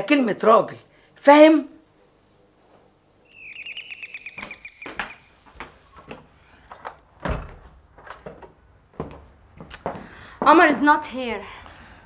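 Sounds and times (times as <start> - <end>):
electronic doorbell chirp trill: 3.3 - 5.1
footsteps on wooden floor: 4.4 - 6.3, 7.2 - 10.5.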